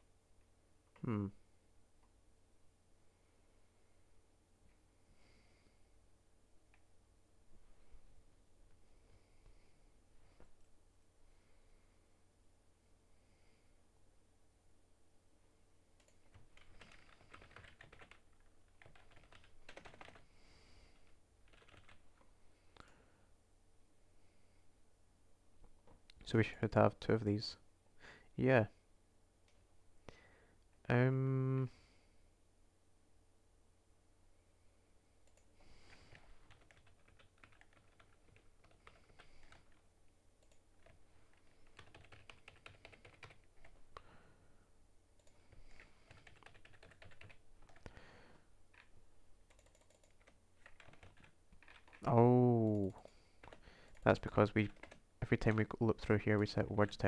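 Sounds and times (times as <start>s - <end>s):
computer keyboard typing: 16.0s - 20.3s, 21.0s - 22.0s, 35.3s - 39.8s, 40.4s - 44.0s, 45.2s - 47.9s, 48.7s - 55.6s.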